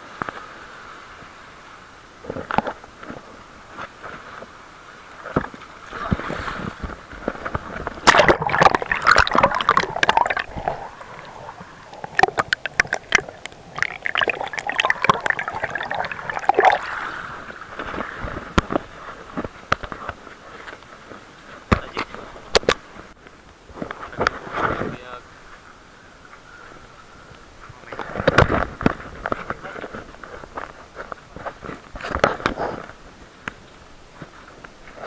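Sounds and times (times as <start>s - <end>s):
crackling splashes: 0.0s - 35.0s
seawater sloshing and gurgling: 5.1s - 22.8s.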